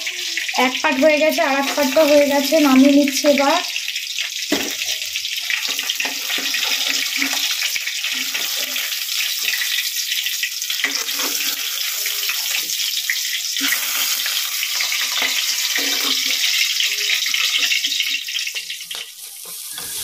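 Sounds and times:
fish sizzling in hot oil: 0:00.0 - 0:20.0
metal spatula scraping pan: 0:10.7 - 0:12.8, 0:13.6 - 0:20.0.

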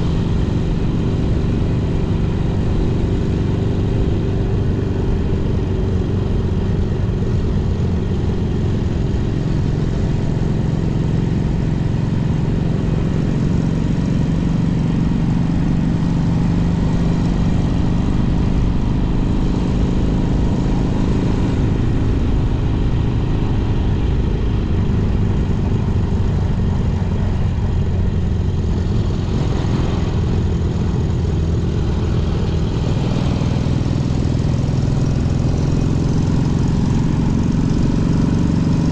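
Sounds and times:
motorcycle engine running: 0:00.0 - 0:38.9
wind and road noise: 0:00.0 - 0:38.9.

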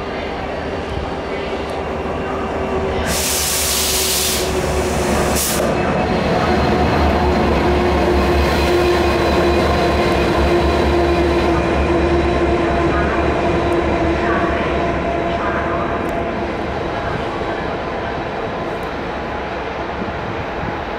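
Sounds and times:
diesel locomotive engine droning: 0:00.0 - 0:20.9
loud air hiss: 0:03.0 - 0:05.7.

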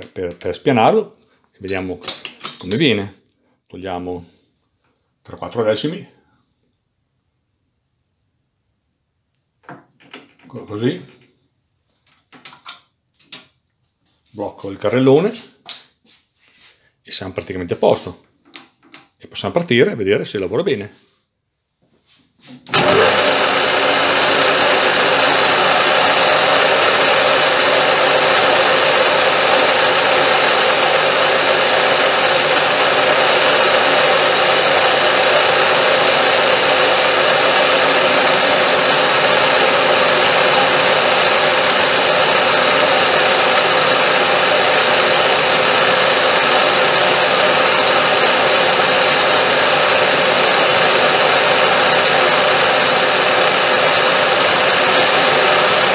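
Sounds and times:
metal lathe whirring: 0:22.7 - 0:55.9.

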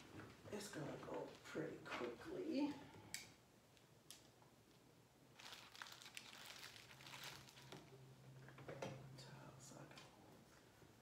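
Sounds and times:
plastic items rustling and crinkling: 0:05.3 - 0:08.6.

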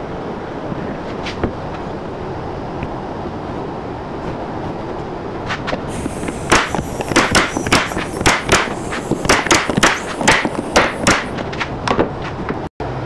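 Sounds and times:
steady rushing noise: 0:00.0 - 0:13.0
staple gun firing into wood: 0:06.5 - 0:11.2.

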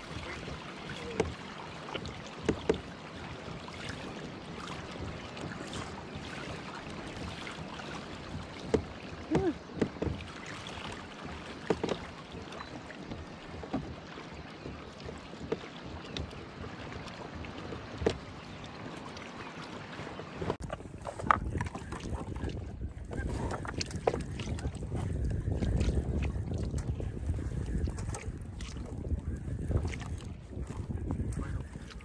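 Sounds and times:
water lapping against kayak hull: 0:00.0 - 0:32.0
water slaps and gurgles: 0:00.0 - 0:32.0
wind noise: 0:20.6 - 0:32.0.

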